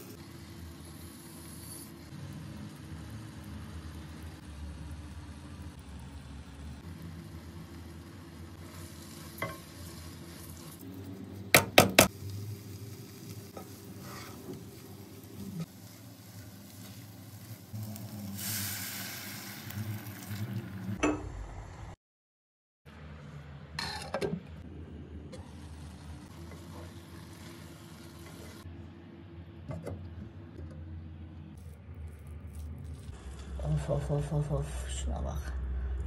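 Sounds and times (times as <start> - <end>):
food sizzling: 0.0 - 21.0, 25.3 - 28.7.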